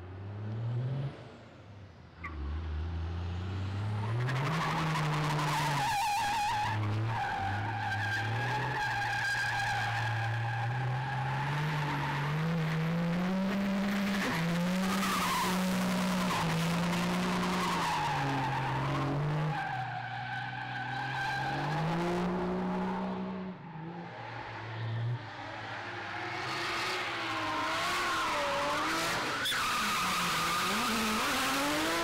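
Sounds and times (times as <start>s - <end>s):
engine revving high: 30.2s - 32.0s.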